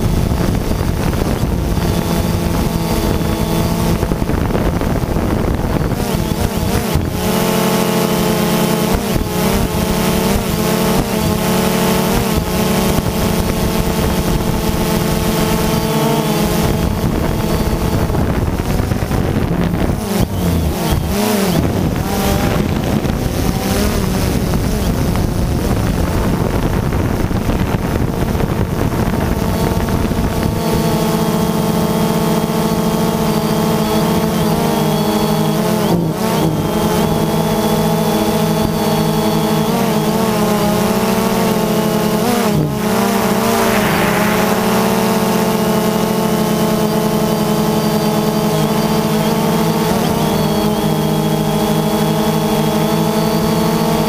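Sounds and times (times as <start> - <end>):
drone propellers humming: 0.0 - 54.0
wind noise on microphone: 0.0 - 54.0.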